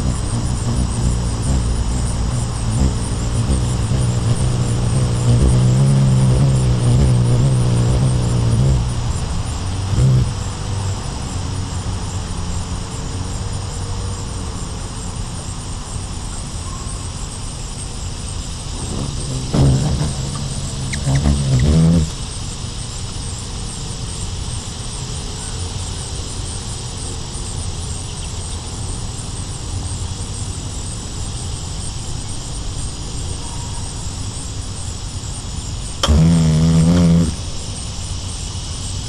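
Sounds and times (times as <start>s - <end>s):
hummingbird wings humming: 0.0s - 11.0s, 18.0s - 24.1s, 35.8s - 39.0s.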